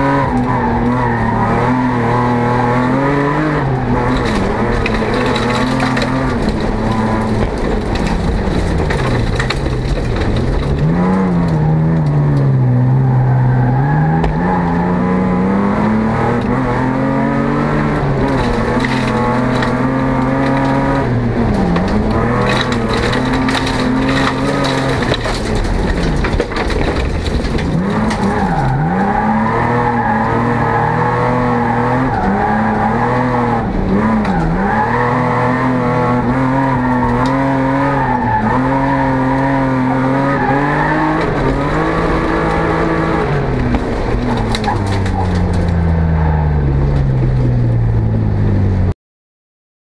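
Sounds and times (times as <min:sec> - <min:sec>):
car engine at high revs: 0:00.0 - 0:48.9
ticks and clatters: 0:21.7 - 0:28.8.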